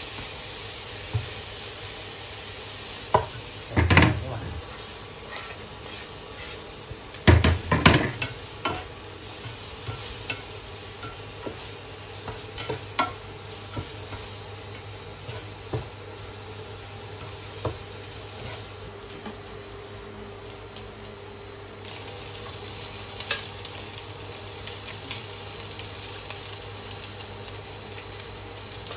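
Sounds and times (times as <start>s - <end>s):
bacon sizzling in a pan: 0.0s - 28.9s
utensils clicking against pan: 7.3s - 15.5s.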